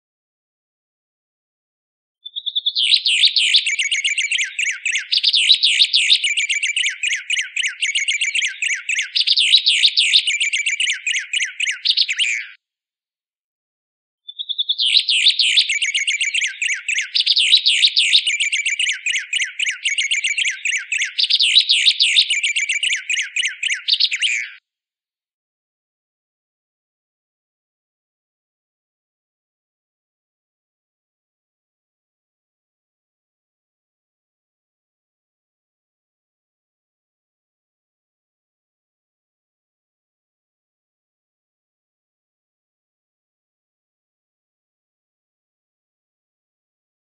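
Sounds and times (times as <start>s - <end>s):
songbird whistling and trilling: 2.2s - 12.6s, 14.3s - 24.6s.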